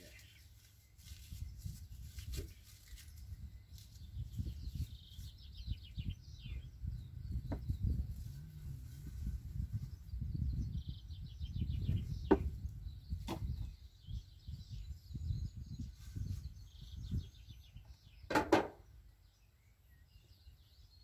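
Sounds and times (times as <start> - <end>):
small birds chirping: 0.0 - 21.0
sharp knocks: 18.3 - 18.8.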